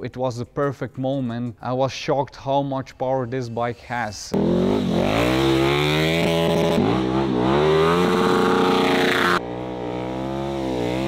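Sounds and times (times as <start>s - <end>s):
motorcycle engine revving: 4.4s - 11.0s.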